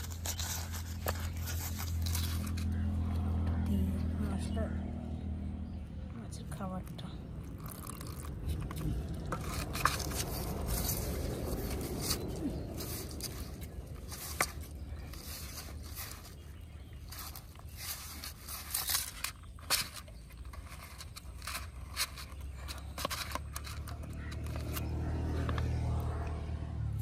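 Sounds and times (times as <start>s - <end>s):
fingers mixing dough on metal plate: 7.5s - 24.8s.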